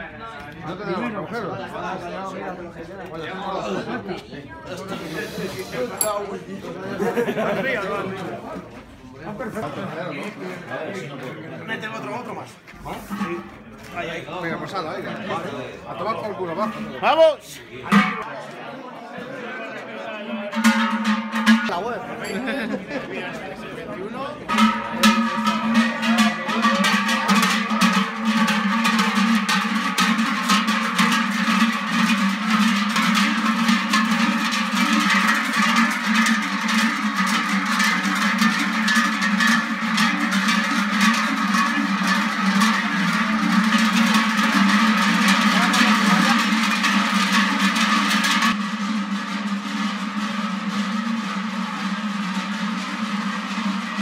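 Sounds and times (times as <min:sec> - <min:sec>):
cowbells clanging: 0:05.7 - 0:06.4, 0:20.5 - 0:22.9, 0:24.4 - 0:48.6.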